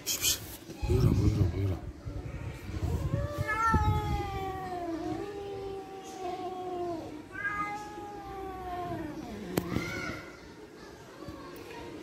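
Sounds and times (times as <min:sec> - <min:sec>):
cat meowing: 0:02.8 - 0:09.2.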